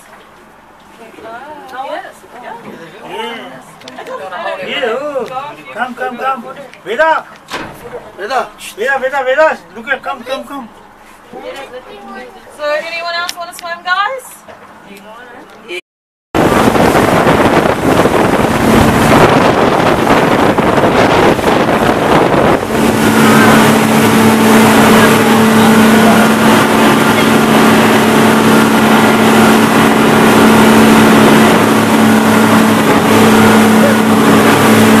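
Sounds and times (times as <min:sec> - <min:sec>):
boat engine humming: 0:16.4 - 0:35.0
wind and water rushing: 0:16.4 - 0:35.0.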